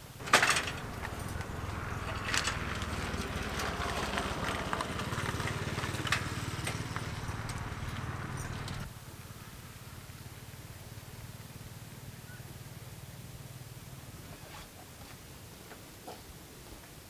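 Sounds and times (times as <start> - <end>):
small motorbike engine running: 0.1 - 8.9
light clicks and rattles: 0.2 - 8.9.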